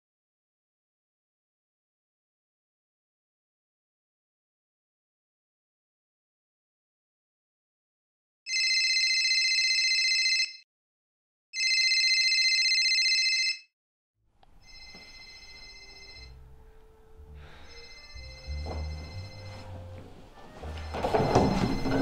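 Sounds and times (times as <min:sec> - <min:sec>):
phone ringtone: 0:08.5 - 0:10.6, 0:11.6 - 0:13.7, 0:14.6 - 0:16.5, 0:17.4 - 0:22.0
low room hum: 0:14.3 - 0:21.0.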